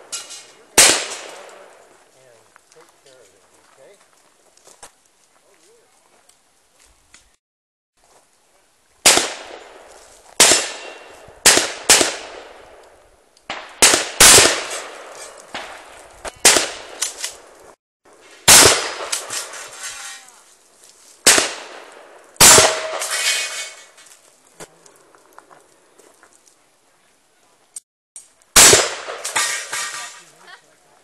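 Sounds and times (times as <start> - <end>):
gunshots with echo: 0.8 - 1.7, 9.1 - 12.7, 13.5 - 17.2, 18.5 - 19.5, 21.3 - 23.3, 28.6 - 29.8.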